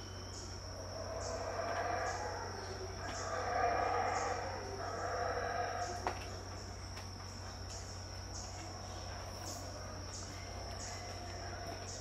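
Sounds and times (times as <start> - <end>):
insect chorus whining: 0.0 - 12.0
distant howler monkey roar: 0.4 - 6.7.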